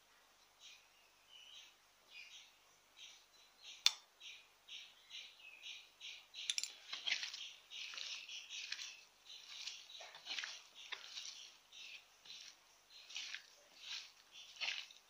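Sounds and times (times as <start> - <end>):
bird chirping: 0.0 - 15.0
hand mixing grated coconut: 6.8 - 15.0.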